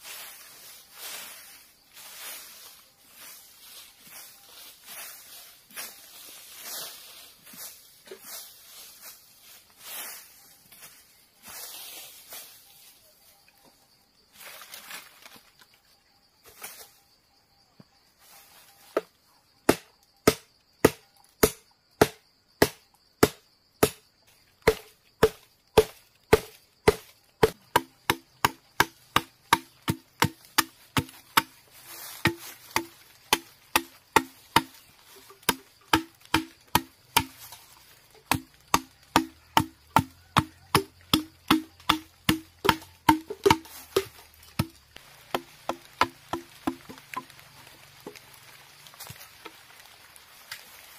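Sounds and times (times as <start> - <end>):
machete chopping bamboo: 18.8 - 47.4.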